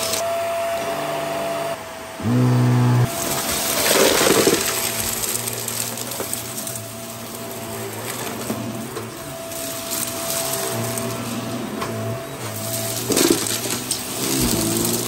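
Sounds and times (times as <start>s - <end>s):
vacuum cleaner motor whine: 0.0s - 15.0s
debris crackling in vacuum: 3.0s - 15.0s.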